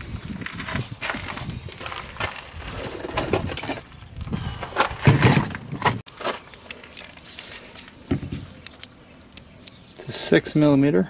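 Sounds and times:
sharp metallic clinks: 0:02.8 - 0:04.6.

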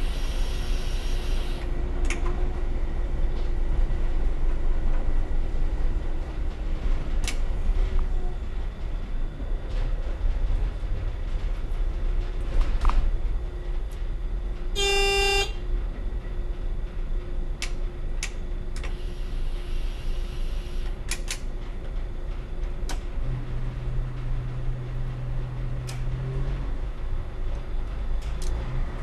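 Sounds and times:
railcar engine rumble: 0:00.0 - 0:29.0
steady low hum: 0:00.0 - 0:29.0
train horn toot: 0:14.7 - 0:15.7.

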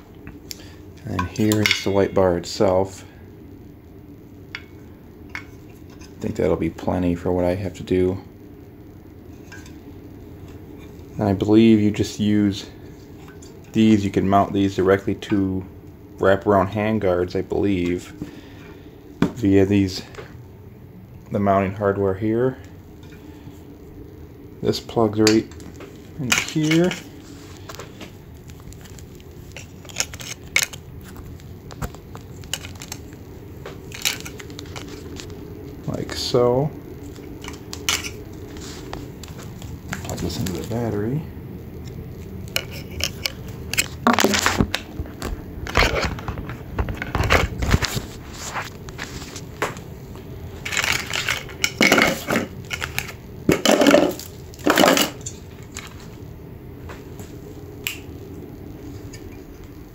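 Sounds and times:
rustling handling noise: 0:25.4 - 0:36.2, 0:37.0 - 0:41.0, 0:41.8 - 0:56.3.

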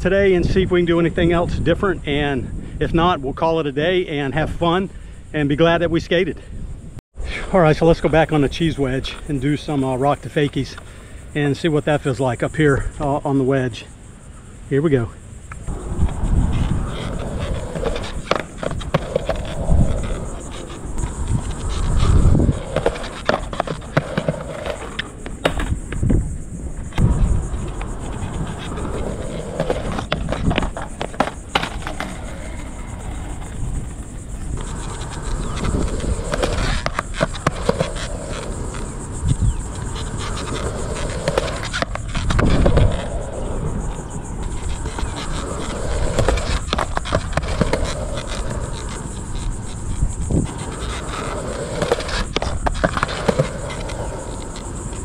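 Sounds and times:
skateboard wheels rolling on concrete: 0:00.0 - 0:55.0
skateboard clacking on concrete: 0:15.5 - 0:55.0.

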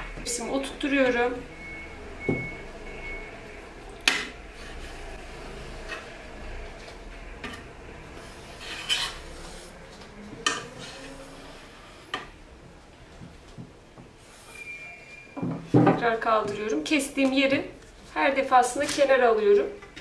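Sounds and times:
knife scraping metal tray: 0:08.4 - 0:09.8.

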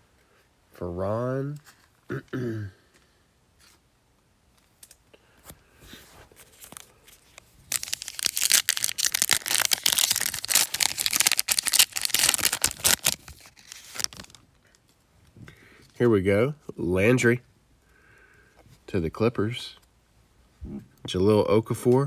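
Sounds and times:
plastic wrappers crinkling: 0:06.4 - 0:14.8.

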